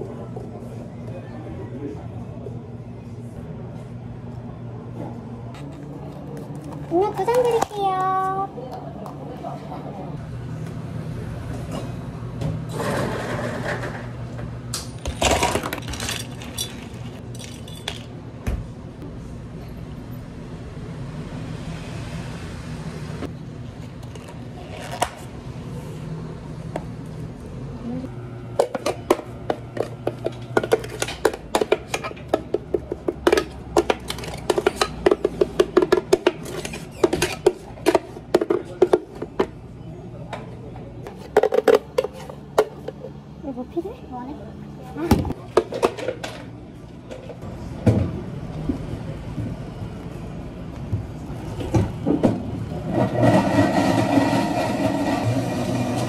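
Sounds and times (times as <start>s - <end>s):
plastic cups and lids handled: 28.6s - 39.6s.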